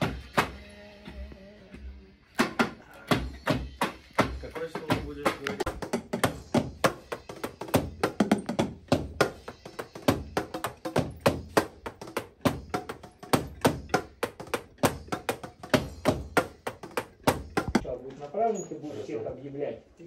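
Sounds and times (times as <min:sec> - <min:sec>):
electronic drum kit playing: 0:03.0 - 0:17.8.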